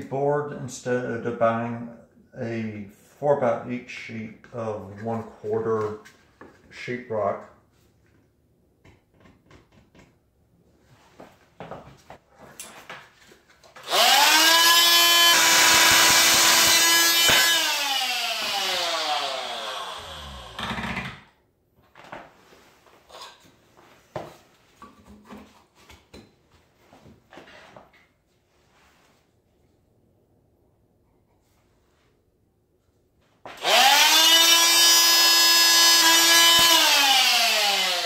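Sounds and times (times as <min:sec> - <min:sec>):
multi-tool cutting wood: 0:13.7 - 0:21.3, 0:33.5 - 0:38.0.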